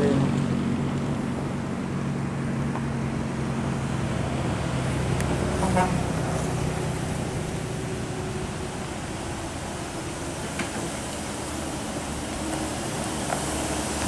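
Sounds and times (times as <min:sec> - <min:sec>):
bus diesel engine humming: 0:00.0 - 0:14.0
horn toot: 0:05.6 - 0:06.1.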